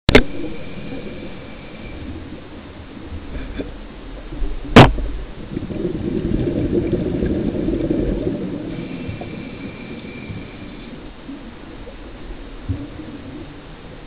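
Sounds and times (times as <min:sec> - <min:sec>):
faint thin whine: 0:00.1 - 0:05.5, 0:08.2 - 0:14.0
diver's exhaled bubbles gurgling: 0:04.3 - 0:13.5.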